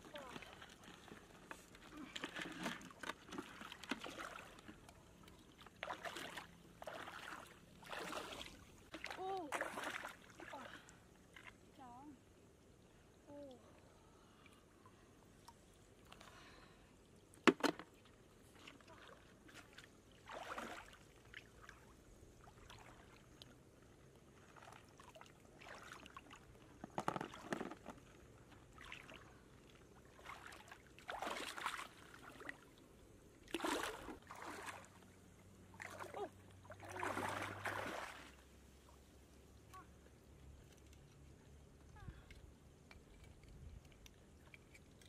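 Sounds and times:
faint low hum: 0.0 - 26.8
pond water splashing and sloshing: 0.0 - 45.0.

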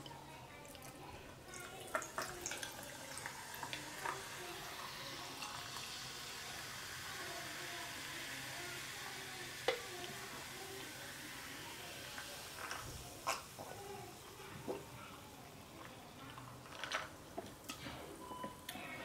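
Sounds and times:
soda fizzing: 0.0 - 17.4
ice cubes crackling and clinking: 16.3 - 17.2.

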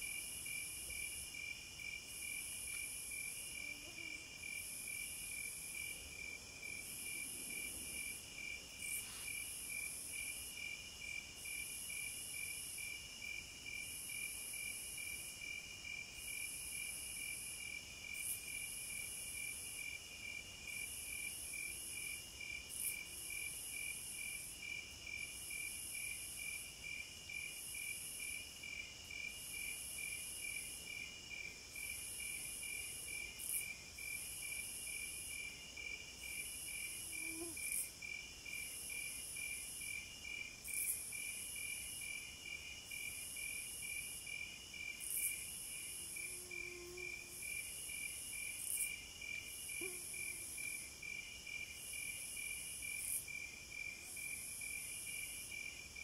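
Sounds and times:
low pulsing insect call: 0.0 - 56.0
high buzzing insect trill: 36.3 - 37.9, 45.1 - 50.8.

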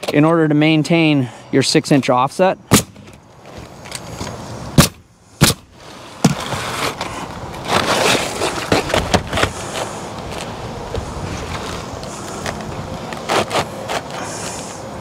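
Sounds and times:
pneumatic nailer shots: 2.7 - 3.2, 4.8 - 6.8
shingles scraping and rustling: 5.7 - 14.8.

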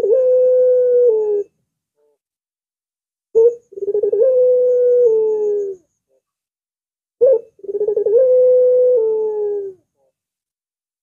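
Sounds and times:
dove cooing: 0.0 - 1.5, 3.4 - 5.9, 7.2 - 10.1.

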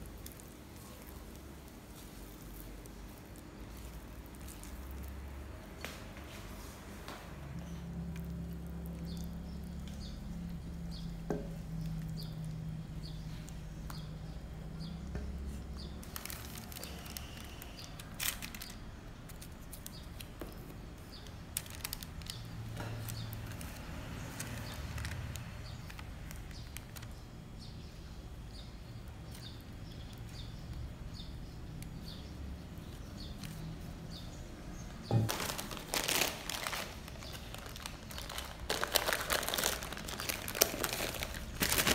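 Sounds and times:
low steady hum: 0.0 - 41.9.

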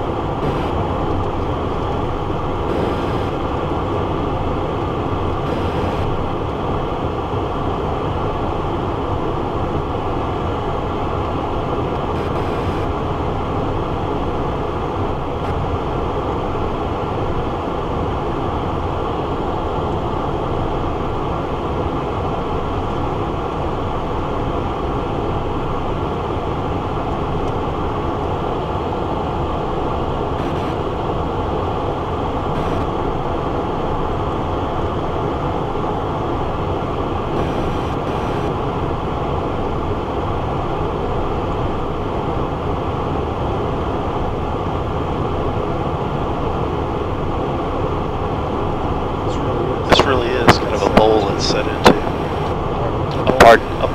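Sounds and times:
jet cockpit airflow and engines: 0.0 - 53.9.

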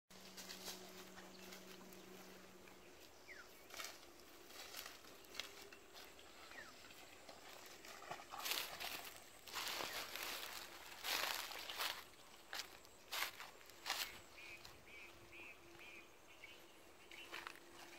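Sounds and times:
faint rural outdoor ambience: 0.1 - 17.9
soft crunches: 8.3 - 14.2.

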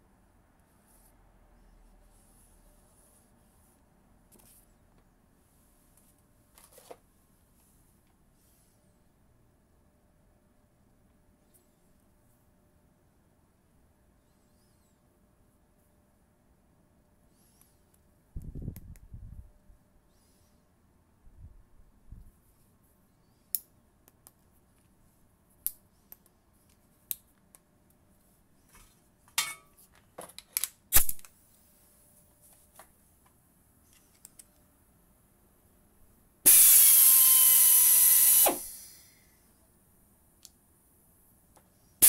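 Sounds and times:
pneumatic screwdriver running: 36.5 - 39.0.

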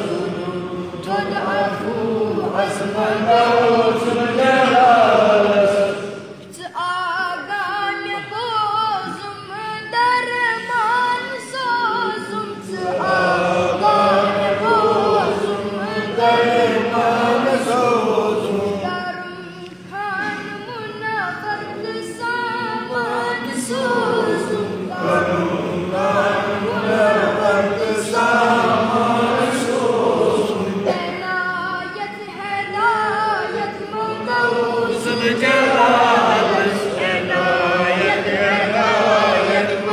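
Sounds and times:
boy singing unaccompanied: 0.0 - 4.9, 5.9 - 29.9, 30.7 - 39.9.

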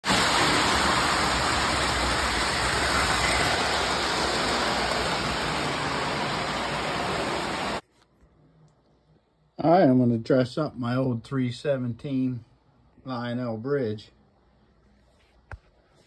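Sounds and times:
model train rolling on metal bridge: 0.0 - 7.8.

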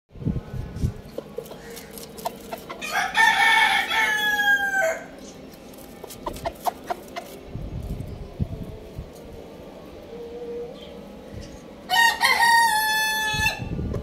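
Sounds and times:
chicken clucking: 1.0 - 4.0, 6.0 - 7.4
rooster crowing: 2.8 - 5.1, 11.9 - 13.7.

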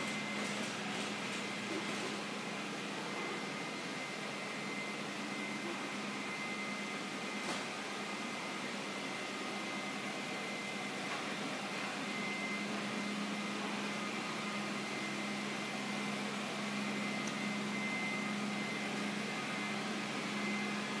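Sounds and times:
printing press whirring: 0.0 - 6.1.

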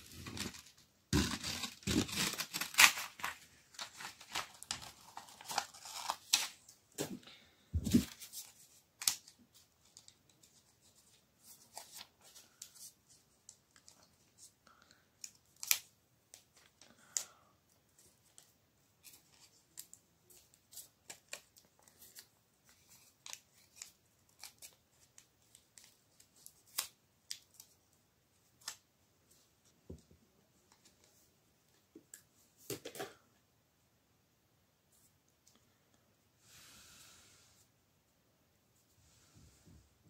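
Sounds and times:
paper crinkling: 0.0 - 6.8.

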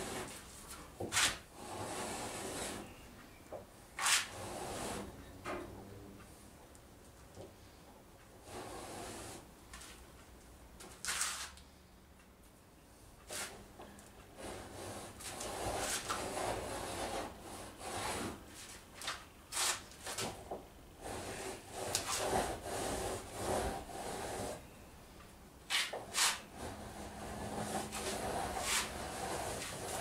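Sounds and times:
scraper cutting wood: 4.0 - 5.1, 14.4 - 20.3, 21.0 - 24.6, 25.7 - 30.0.

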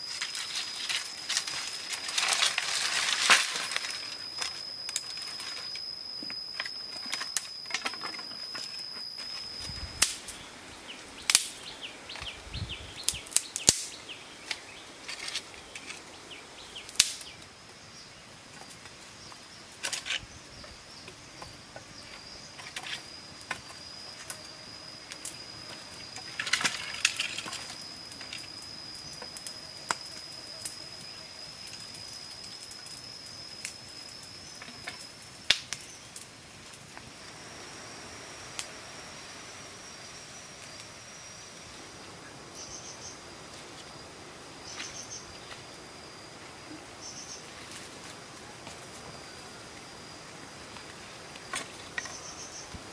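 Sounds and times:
fire crackling: 0.0 - 42.1
high-pitched insect call: 0.0 - 52.9
short insect chirps: 0.0 - 52.9.

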